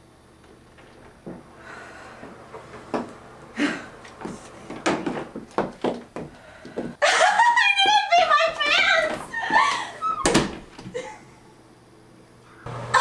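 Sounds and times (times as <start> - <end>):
footsteps: 0.5 - 7.0, 7.8 - 9.9.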